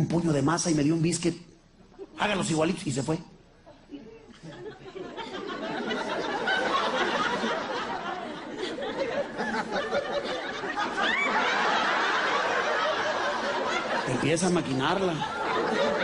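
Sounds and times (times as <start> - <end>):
large audience laughing: 4.4 - 16.0.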